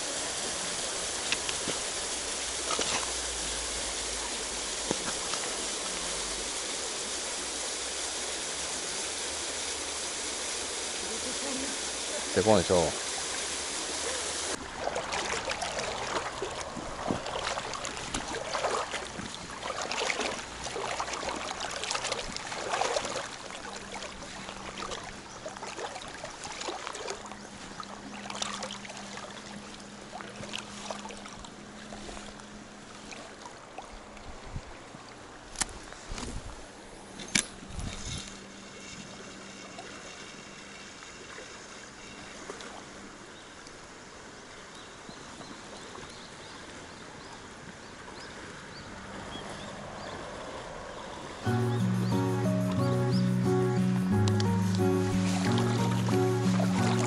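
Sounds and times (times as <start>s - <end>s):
stream running water: 0.0s - 57.0s
footsteps splashing through stream: 1.2s - 6.2s, 14.5s - 36.7s, 54.1s - 57.0s.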